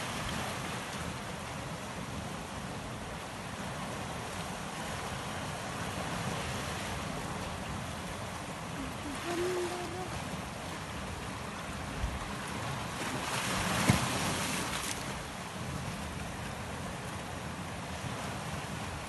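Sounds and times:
sea waves washing over rocks: 0:00.0 - 0:19.0
wind on microphone: 0:08.6 - 0:11.2.

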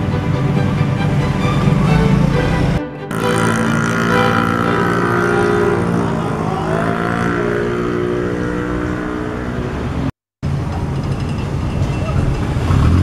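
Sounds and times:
vehicle engine running: 0:01.4 - 0:10.1.

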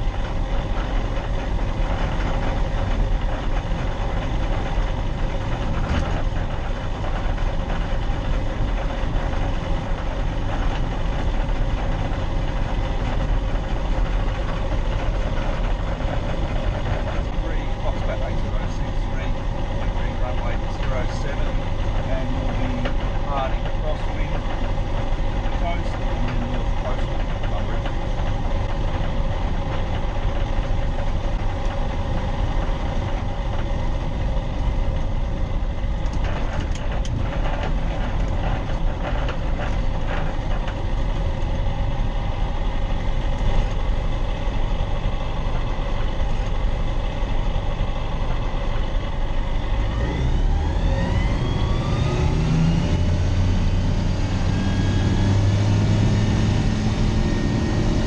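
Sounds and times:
light aircraft engine and propeller: 0:00.0 - 0:58.0.

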